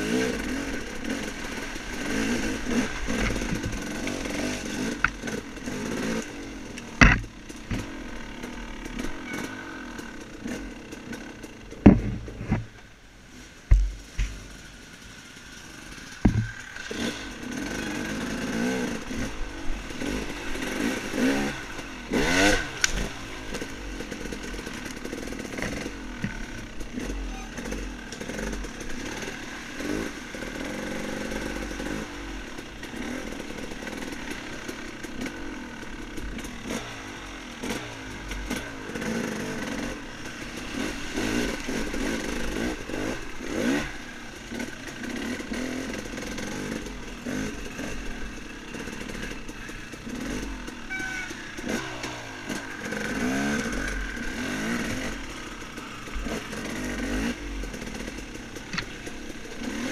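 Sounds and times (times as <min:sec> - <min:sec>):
dirt bike engine revving: 0:00.0 - 0:59.9
sharp knock: 0:07.0 - 0:07.3.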